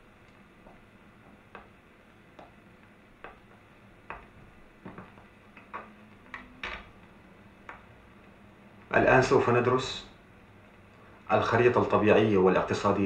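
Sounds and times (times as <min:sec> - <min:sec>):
footsteps on floor: 0:00.3 - 0:06.3.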